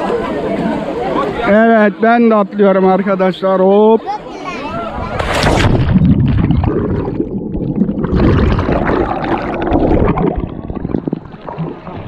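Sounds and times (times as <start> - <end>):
splash into water: 5.0 - 7.0
muffled underwater bubbles: 5.3 - 12.0.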